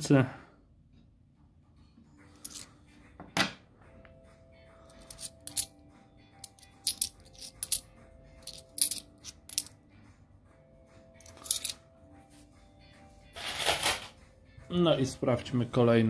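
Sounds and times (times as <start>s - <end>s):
coins clinking: 2.4s - 2.7s, 4.9s - 5.8s, 6.4s - 9.8s, 11.2s - 11.8s, 13.4s - 14.2s.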